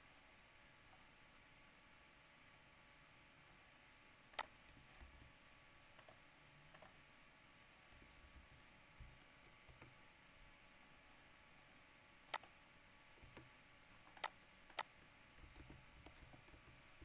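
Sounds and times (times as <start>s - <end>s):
faint steady hum: 0.0s - 17.0s
mouse and keyboard clicks: 12.3s - 12.6s, 13.2s - 17.0s.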